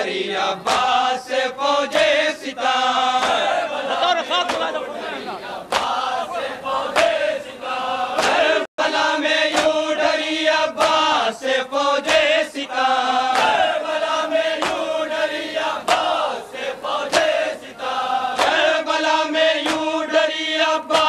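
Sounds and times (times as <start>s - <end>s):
group of men chanting: 0.0s - 21.0s
sharp rhythmic beat: 3.1s - 4.9s, 8.2s - 11.2s.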